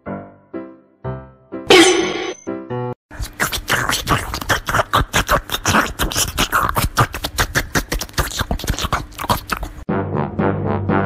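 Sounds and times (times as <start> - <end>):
cat licking and smacking: 3.2 - 9.8.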